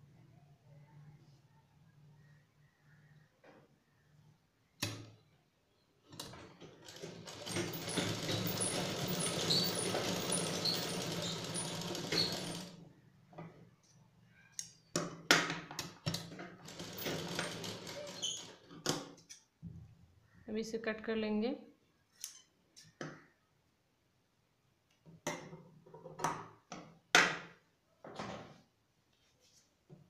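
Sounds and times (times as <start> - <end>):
sewing machine stitching: 6.1 - 12.8, 16.3 - 18.8.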